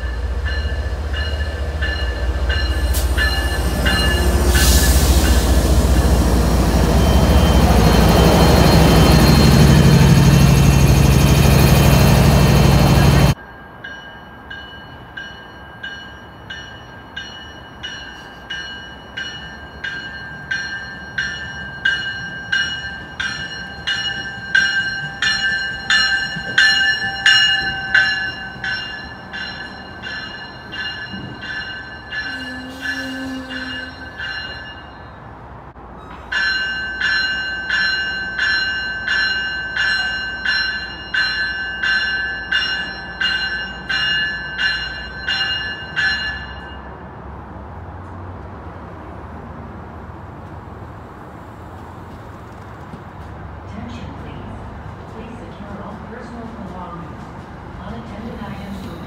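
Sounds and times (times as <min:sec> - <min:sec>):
train warning bell ringing: 0:00.0 - 0:35.5, 0:36.2 - 0:47.1
low train rumble: 0:00.0 - 0:59.0.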